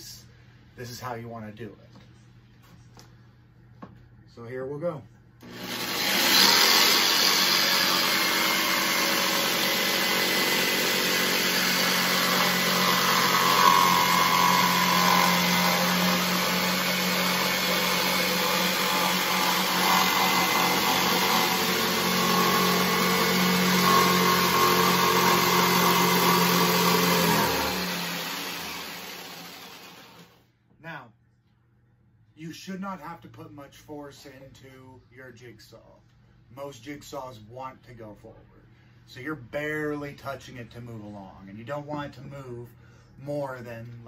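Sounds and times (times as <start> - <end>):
jigsaw cutting plywood: 5.4 - 30.4.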